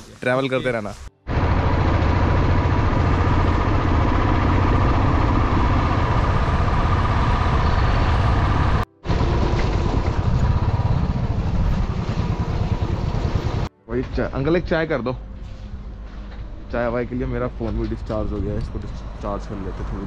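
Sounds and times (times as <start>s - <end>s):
motorcycle engine running: 1.3s - 13.7s.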